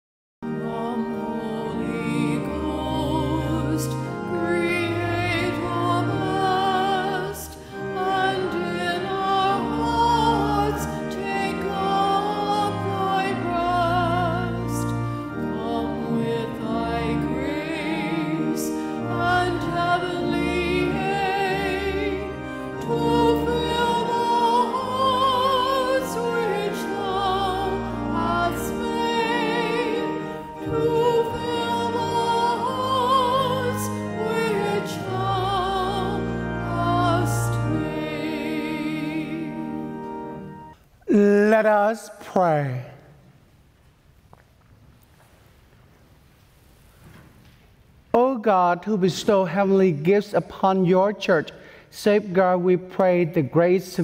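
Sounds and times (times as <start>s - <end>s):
sustained instrumental accompaniment: 0.4s - 41.6s
solo classical singer with vibrato: 0.4s - 43.0s, 48.1s - 54.0s.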